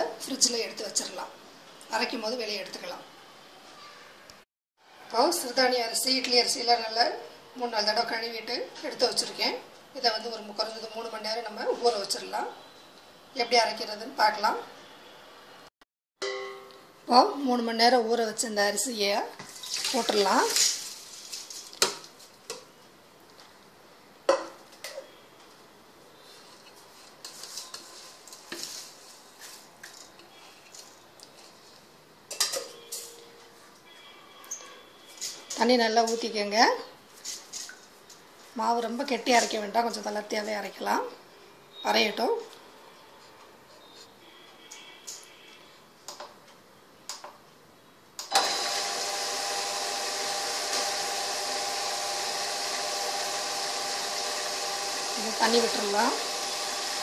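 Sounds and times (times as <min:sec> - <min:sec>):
wet grinder motor hum: 0:48.3 - 0:57.0.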